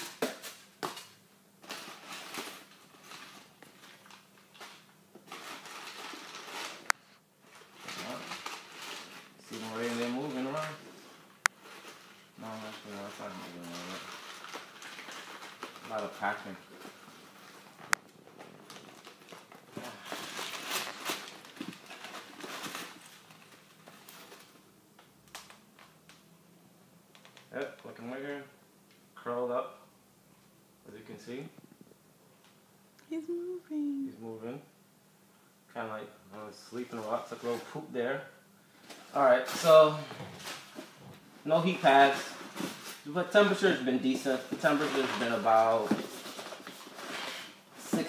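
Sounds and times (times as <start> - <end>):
packing paper rustling: 0.0 - 24.6, 38.8 - 48.0.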